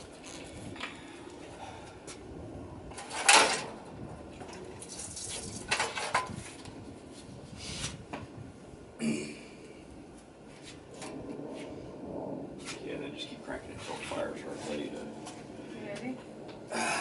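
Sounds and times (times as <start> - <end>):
fuel poured from a bottle: 4.8 - 5.7.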